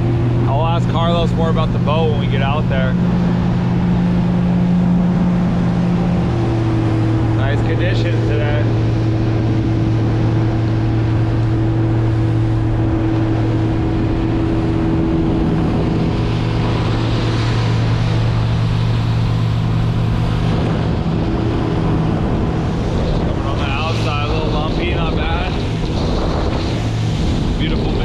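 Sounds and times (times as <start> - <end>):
outboard engine droning: 0.0 - 28.0
water rushing past hull: 0.0 - 28.0
wind rushing: 0.0 - 28.0.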